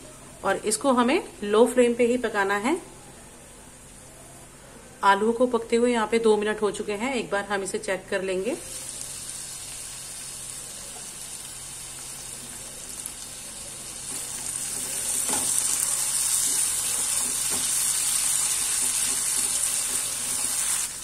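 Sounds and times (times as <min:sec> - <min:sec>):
potatoes sizzling in oil: 0:08.3 - 0:21.0.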